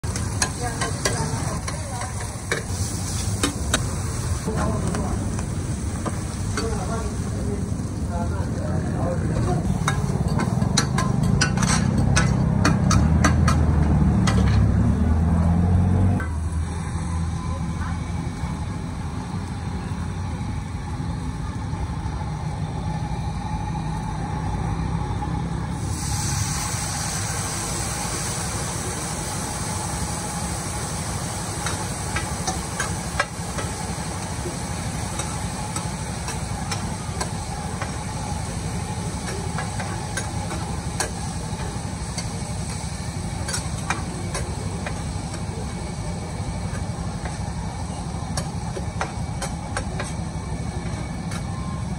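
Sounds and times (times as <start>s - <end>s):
noodles sizzling in a pan: 0.0s - 11.9s, 25.7s - 51.2s
metal ladle scraping a pan: 9.8s - 13.6s.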